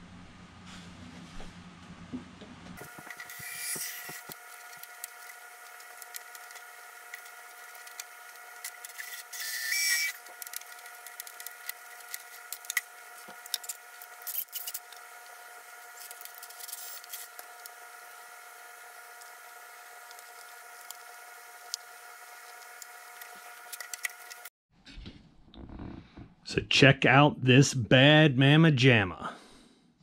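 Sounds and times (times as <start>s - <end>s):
cordless drill boring wood: 2.8s - 24.4s.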